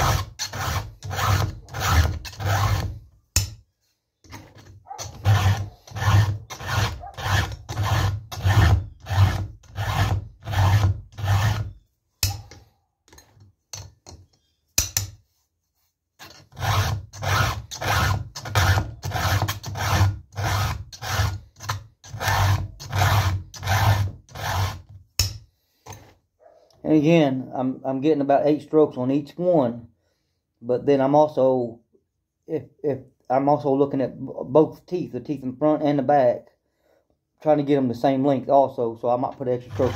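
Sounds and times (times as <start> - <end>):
file rasping on saw chain: 0.0 - 3.5, 4.4 - 12.4, 16.2 - 25.4, 39.3 - 39.9.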